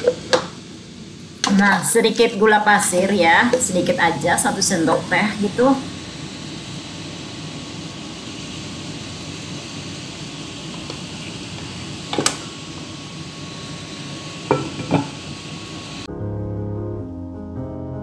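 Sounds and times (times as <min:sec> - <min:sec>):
glass lid knocking on pan: 0:14.5 - 0:15.2.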